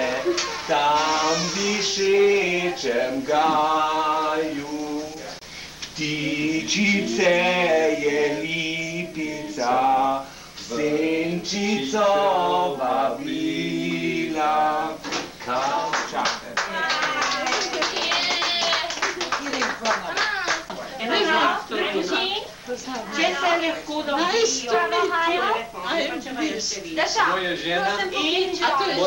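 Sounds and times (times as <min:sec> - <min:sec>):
unaccompanied voices singing: 0:00.0 - 0:18.7, 0:27.6 - 0:29.0.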